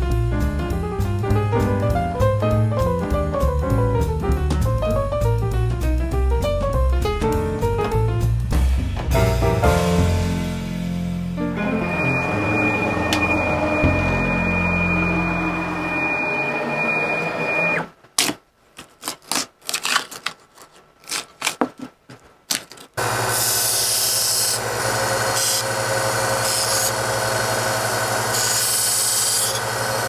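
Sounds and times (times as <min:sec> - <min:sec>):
belt sander running: 0:11.8 - 0:17.8, 0:23.0 - 0:30.0.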